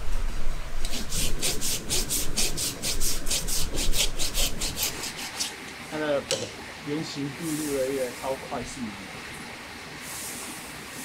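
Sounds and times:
rasp filing a hoof: 0:00.9 - 0:05.6.

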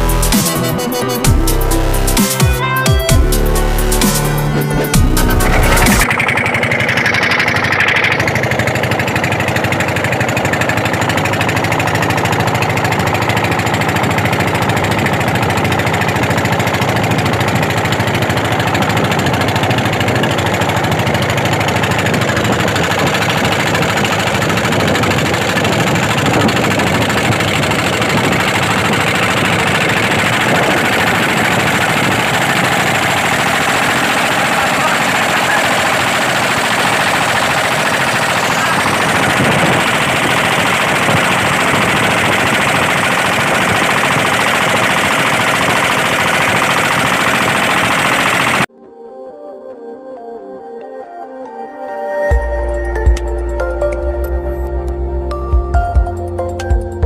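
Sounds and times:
music: 0:00.0 - 0:06.1, 0:48.7 - 0:57.0
boat engine running at high speed: 0:00.0 - 0:48.7.

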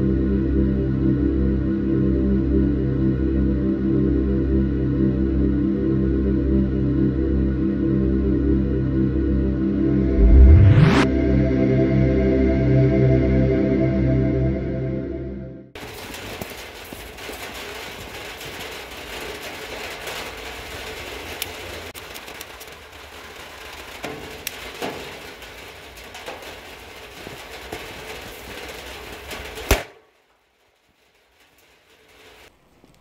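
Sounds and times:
firecracker exploding: 0:15.8 - 0:32.6.

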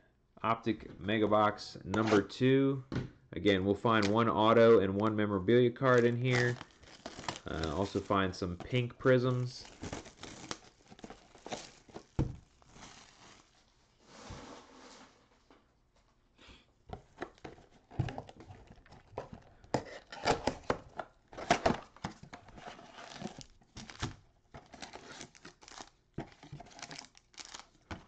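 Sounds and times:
foil packs crinkling: 0:05.8 - 0:13.8, 0:21.4 - 0:28.0.

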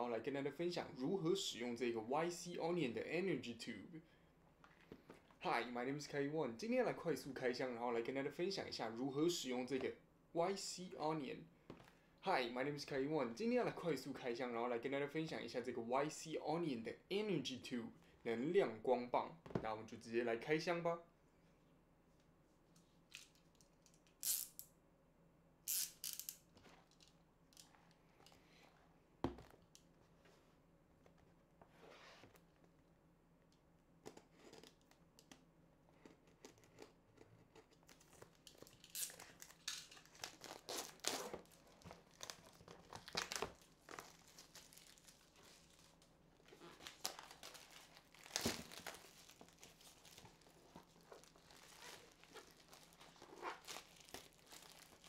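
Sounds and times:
plastic wrap crinkling and tearing: 0:37.9 - 0:55.0.

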